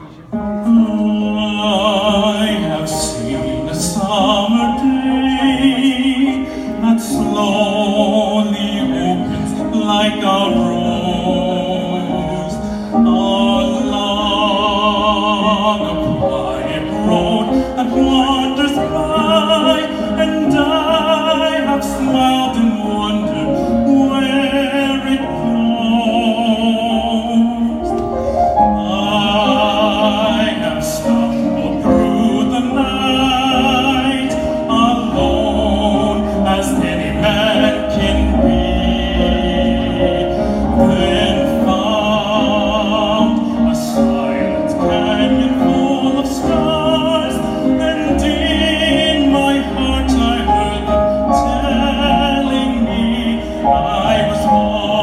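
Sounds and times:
man singing operatically: 0.0s - 55.0s.

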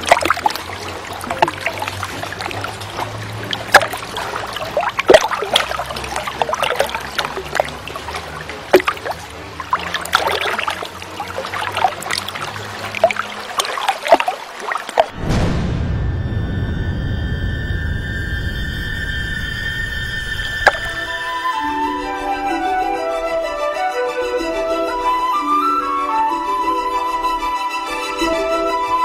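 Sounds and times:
water drips and splashes: 0.0s - 15.2s, 20.5s - 21.2s
water trickling: 0.0s - 15.2s, 20.2s - 21.6s.

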